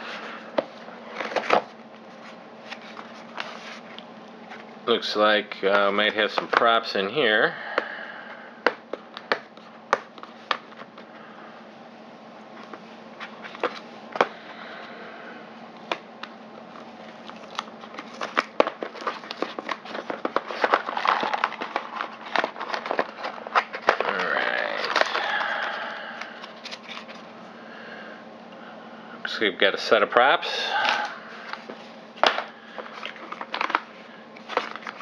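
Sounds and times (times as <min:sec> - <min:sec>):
hands rummaging in packaging: 0:00.0 - 0:04.7, 0:12.6 - 0:14.8, 0:16.7 - 0:27.3, 0:30.6 - 0:35.0
packaging crinkling: 0:16.7 - 0:27.3, 0:30.7 - 0:35.0.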